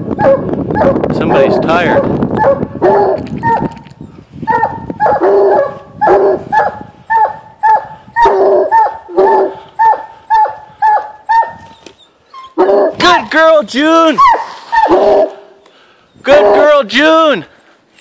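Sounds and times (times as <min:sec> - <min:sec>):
hounds barking: 0:00.0 - 0:03.8, 0:04.4 - 0:11.8, 0:12.4 - 0:13.0, 0:14.1 - 0:15.6, 0:16.3 - 0:16.8.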